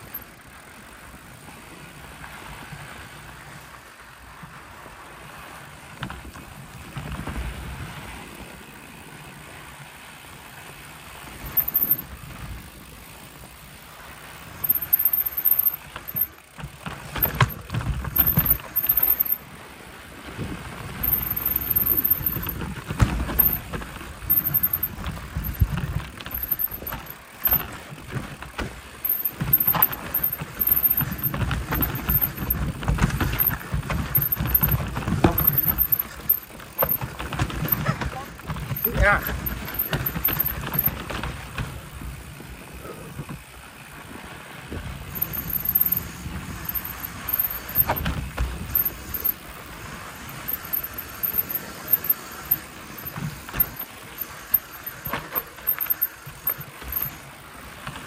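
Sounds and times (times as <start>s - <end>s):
bike rattling and knocking: 0.0s - 1.3s, 5.8s - 9.9s, 10.6s - 58.0s
wind rumble on microphone: 20.0s - 43.5s.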